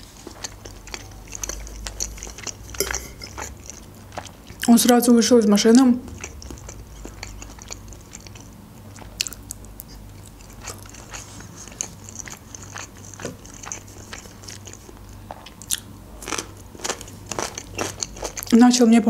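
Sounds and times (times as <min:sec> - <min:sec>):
chewing food: 0:00.0 - 0:18.9
wet mouth clicks: 0:01.0 - 0:03.8.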